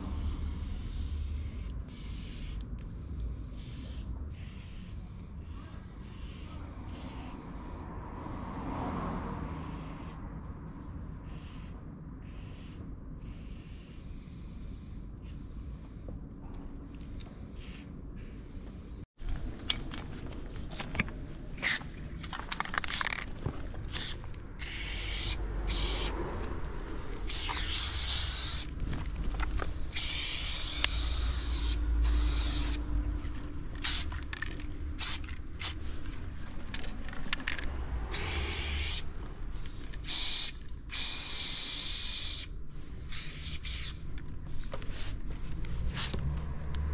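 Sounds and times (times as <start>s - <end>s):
spray paint can hissing: 0.0s - 8.6s, 9.4s - 10.2s, 11.3s - 16.2s, 16.9s - 19.1s, 21.1s - 22.0s, 22.8s - 28.8s, 29.6s - 32.9s, 33.8s - 36.0s, 38.1s - 46.2s.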